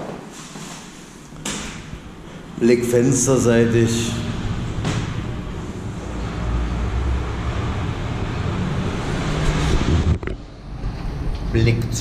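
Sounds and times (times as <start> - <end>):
low rumble: 3.4 - 11.6.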